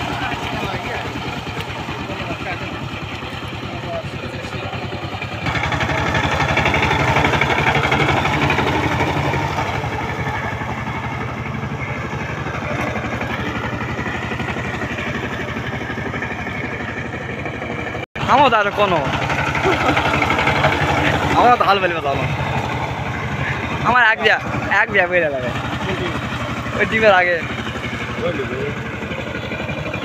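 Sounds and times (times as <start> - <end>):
diesel tiller engine running: 0.0 - 30.0.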